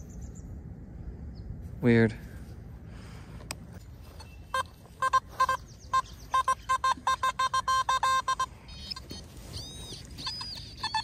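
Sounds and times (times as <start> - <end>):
metal detector beeps: 4.2 - 11.0.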